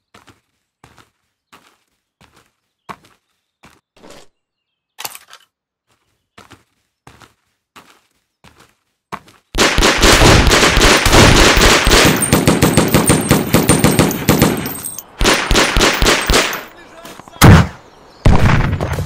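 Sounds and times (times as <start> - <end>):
rapid machine-gun and rifle fire: 9.6 - 16.7.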